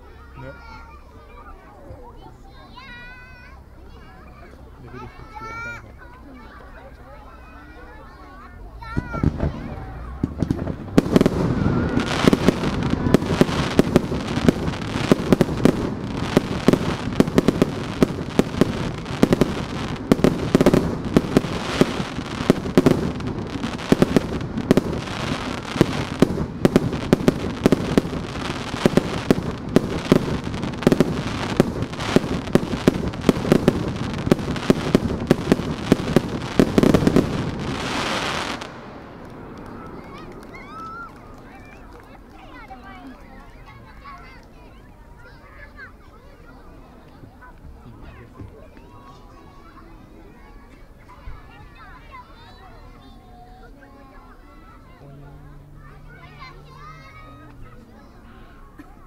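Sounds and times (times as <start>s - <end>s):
fireworks bangs and crackling: 6.4s - 53.4s.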